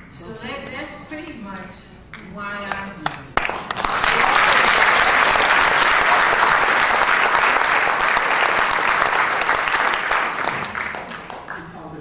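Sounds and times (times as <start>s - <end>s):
audience applause: 3.4s - 11.6s.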